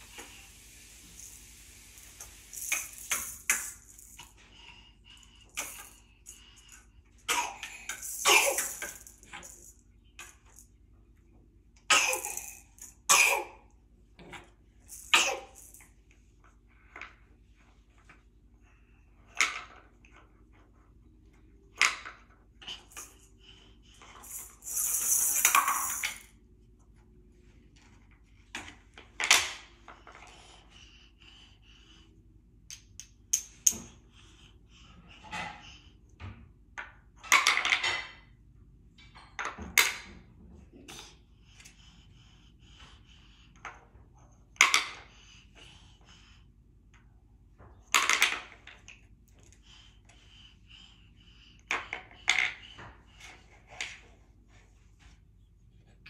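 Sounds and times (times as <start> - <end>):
toy pieces clacking together: 2.3 - 4.5, 7.7 - 10.7, 24.2 - 26.3.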